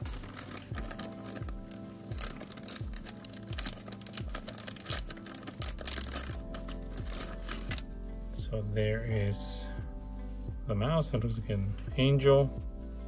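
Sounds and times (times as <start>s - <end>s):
plastic bag crinkling: 0.0s - 7.9s
background music with steady beat: 0.0s - 13.0s.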